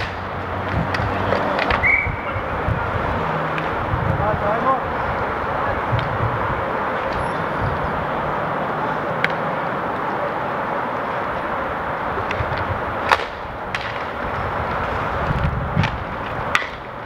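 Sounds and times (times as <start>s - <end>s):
sticks striking a puck: 0.0s - 1.9s, 12.3s - 14.2s, 15.8s - 16.9s
steady rink noise: 0.0s - 17.0s.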